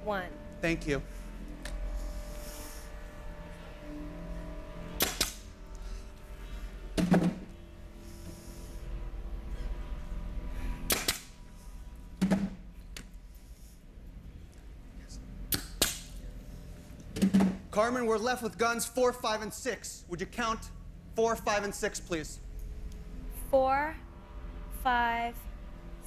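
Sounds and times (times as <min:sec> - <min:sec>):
nail gun sharp pops: 0:05.0 - 0:05.4, 0:10.9 - 0:11.3, 0:15.5 - 0:16.1.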